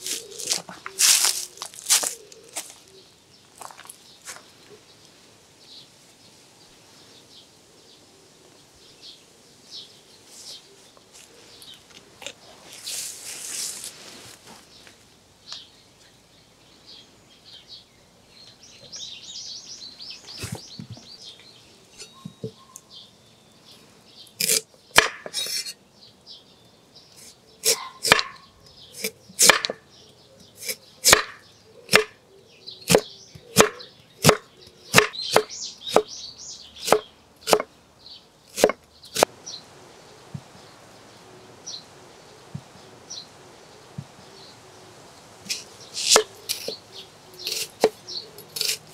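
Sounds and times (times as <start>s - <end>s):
knife chopping on wooden board: 24.4s - 25.6s, 27.6s - 28.4s, 29.4s - 29.8s, 31.0s - 32.1s, 32.9s - 34.4s, 35.0s - 36.1s, 36.8s - 37.7s.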